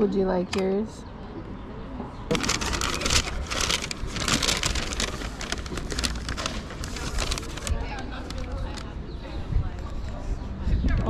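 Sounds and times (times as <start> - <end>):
paper bag rustling and crinkling: 2.3 - 8.8.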